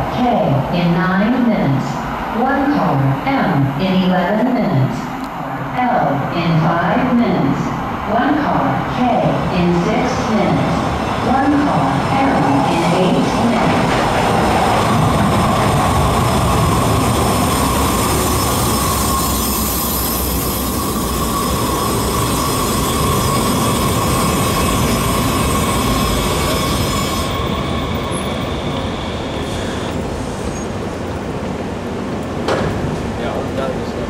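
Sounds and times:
light-rail train running: 0:00.0 - 0:34.0
high wheel squeal: 0:16.9 - 0:30.7.

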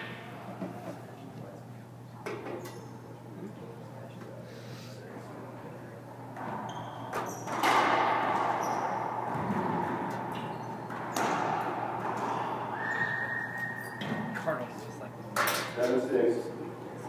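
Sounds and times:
racquetball smacks echoing: 0:07.6 - 0:12.6.

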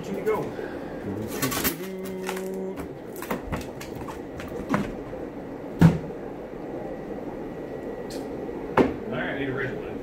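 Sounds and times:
foam boxes knocking and scraping: 0:03.1 - 0:05.0.

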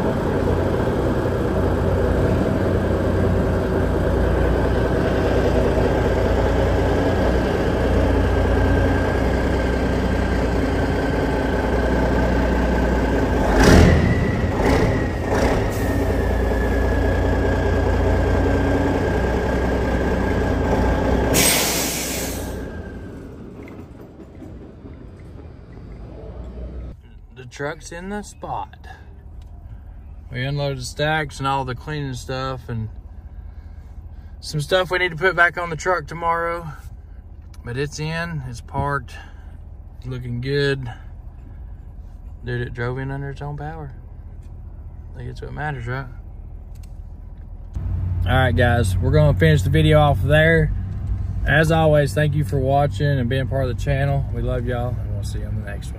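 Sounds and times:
diesel truck engine running: 0:00.0 - 0:27.0, 0:27.6 - 0:55.9
sharp air pops: 0:21.3 - 0:22.6
air brake hiss: 0:21.3 - 0:22.8.

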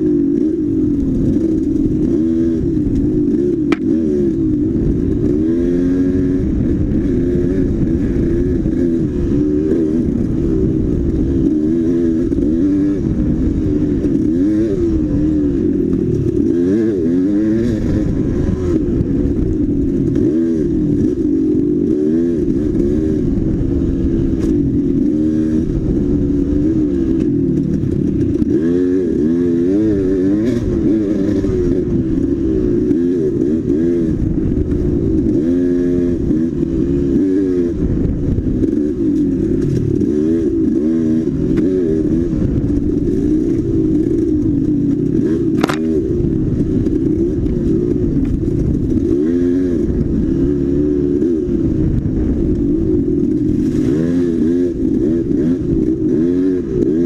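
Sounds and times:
dirt bike engine revving: 0:00.0 - 0:57.0
clicks and clatters: 0:43.4 - 0:46.0.

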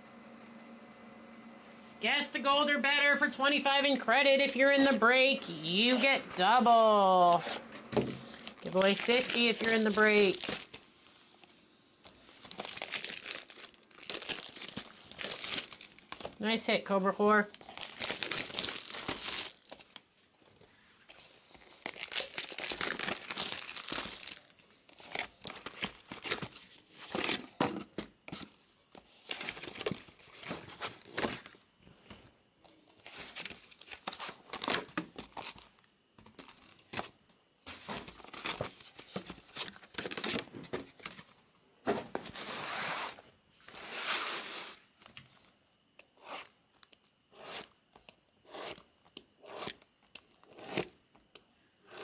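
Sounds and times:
plastic wrap tearing and crinkling: 0:08.2 - 0:11.2, 0:12.1 - 0:16.4, 0:17.4 - 0:20.1, 0:21.1 - 0:27.5, 0:29.2 - 0:31.5, 0:33.0 - 0:37.2, 0:37.8 - 0:41.1.

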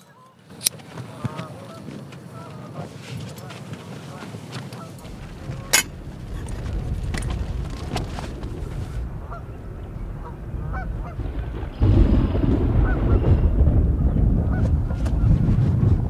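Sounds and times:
geese honking faintly: 0:00.0 - 0:15.3
wind gust on microphone: 0:04.1 - 0:16.0.

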